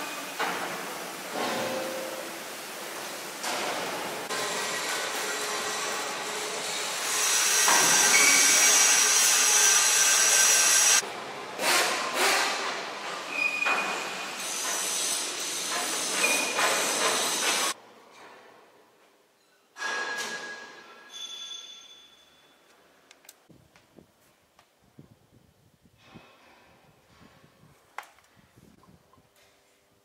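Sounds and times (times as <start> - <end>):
industrial machinery hiss: 0.0 - 11.0, 14.0 - 17.8.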